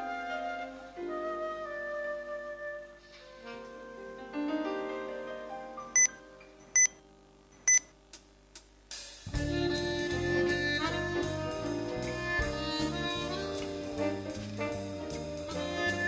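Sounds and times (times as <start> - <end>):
flute held notes: 0.0 - 4.4, 9.4 - 16.0
jazz band playing: 2.6 - 5.4, 9.2 - 16.0.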